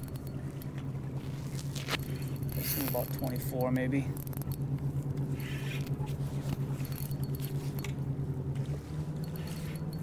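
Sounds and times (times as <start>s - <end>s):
fishing reel ticking: 1.9s - 4.7s.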